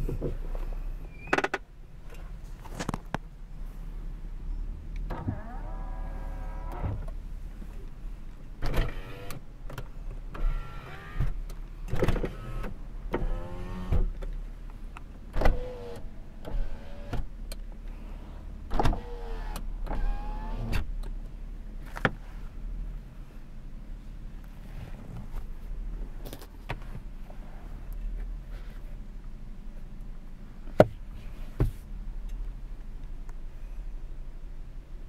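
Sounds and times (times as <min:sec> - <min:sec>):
steady low hum: 0:00.0 - 0:35.0
power window motor whine: 0:05.1 - 0:07.1, 0:10.3 - 0:11.4, 0:12.0 - 0:14.1, 0:15.4 - 0:17.3, 0:18.8 - 0:20.9.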